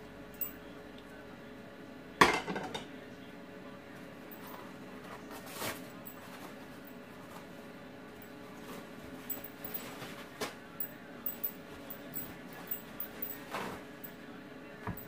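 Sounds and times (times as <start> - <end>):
plate set down with clatter: 2.2 - 2.9.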